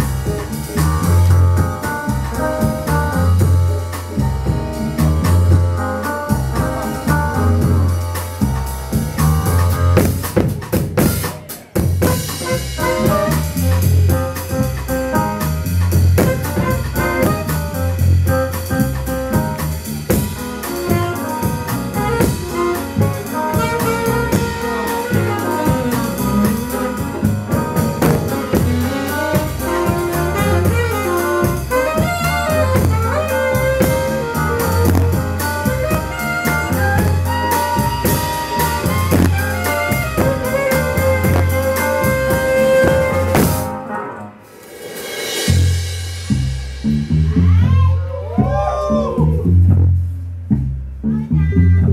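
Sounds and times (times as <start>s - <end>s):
pulsing bass line: 0.0s - 10.2s, 12.0s - 43.6s, 45.5s - 51.9s
drum kit: 0.0s - 51.9s
saxophone: 12.0s - 14.1s, 16.2s - 18.0s, 20.4s - 44.3s.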